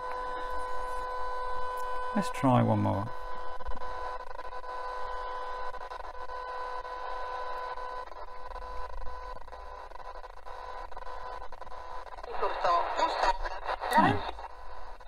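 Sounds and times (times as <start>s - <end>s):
radio static hiss: 0.0s - 15.0s
whine of interference tones: 0.0s - 15.0s.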